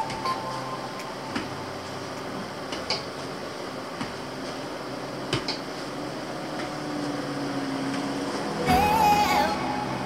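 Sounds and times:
room noise hiss: 0.0s - 10.0s.

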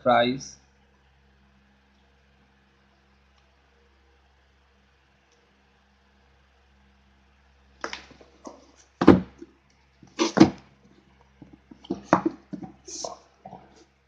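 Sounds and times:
cardboard box knocks and scuffs: 9.0s - 9.3s, 10.2s - 10.6s, 11.8s - 12.7s.

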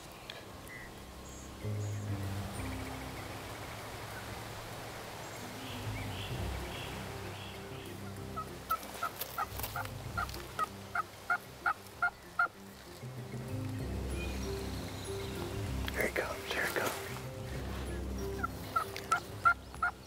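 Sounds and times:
turkey calling: 0.6s - 20.0s.

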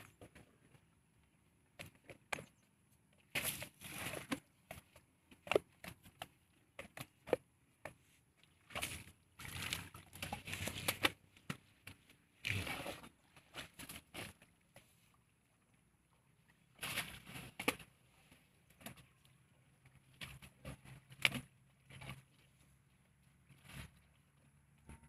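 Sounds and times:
mud sloshing: 3.2s - 24.6s
elephant scraping wet mud: 8.7s - 11.2s, 12.4s - 14.4s.

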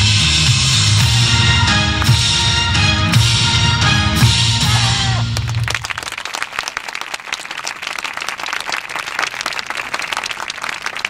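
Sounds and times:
dance music: 0.0s - 5.7s
audience applauding: 4.6s - 11.0s.

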